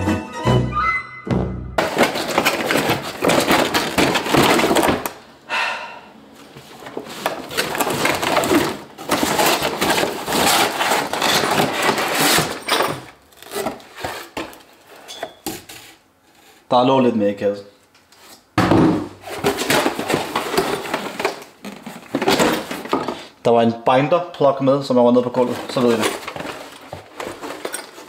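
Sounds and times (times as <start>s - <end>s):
packaging crackling and rustling: 1.8s - 5.2s, 6.6s - 14.7s, 25.3s - 28.0s.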